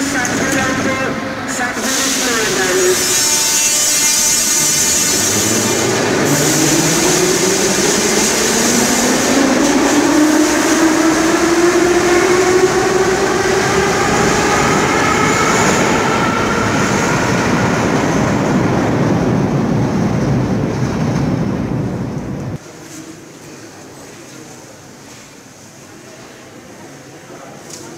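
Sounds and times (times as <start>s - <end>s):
train wheels rumbling: 0.0s - 22.6s
metro train whine: 0.0s - 22.8s.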